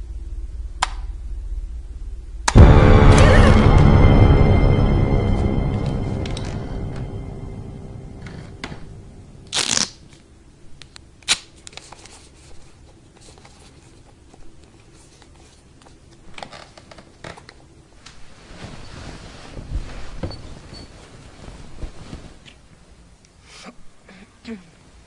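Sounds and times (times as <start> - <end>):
short loud noise: 2.5 - 9.8.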